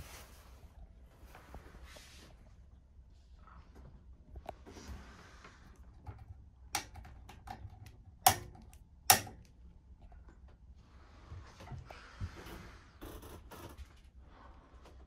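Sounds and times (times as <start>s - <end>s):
reading lamp switch clicking: 6.8s - 9.6s.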